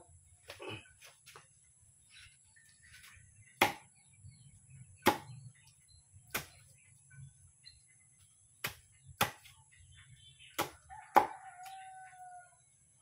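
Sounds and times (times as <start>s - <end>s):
sharp chopping strikes: 3.6s - 3.9s, 5.0s - 5.4s, 6.3s - 6.6s, 8.6s - 9.5s, 10.5s - 11.3s
rooster crowing: 10.9s - 12.6s.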